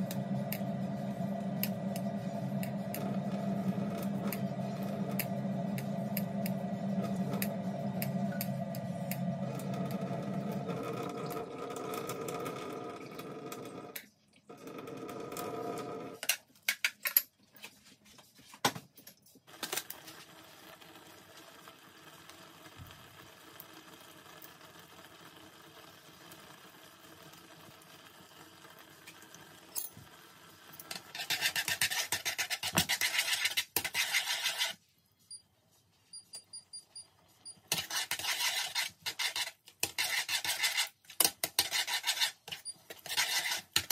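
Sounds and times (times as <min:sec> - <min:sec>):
chopsticks scraping in a saucepan: 0:30.9 - 0:34.8, 0:37.7 - 0:43.9.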